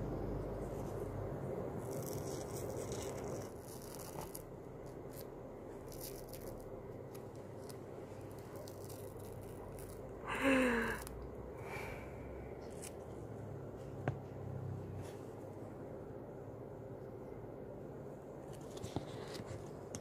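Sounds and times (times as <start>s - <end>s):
face mask film crackling and tearing: 1.8s - 10.1s.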